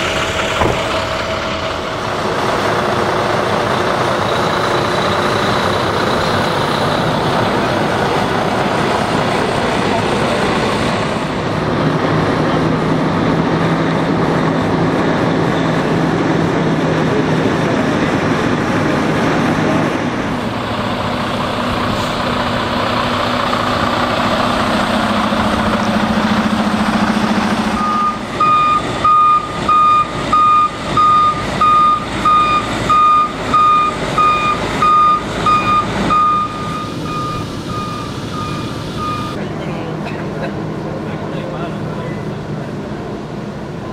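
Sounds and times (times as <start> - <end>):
diesel truck engine running: 0.0 - 43.9
truck backup alarm beeping: 27.7 - 39.4.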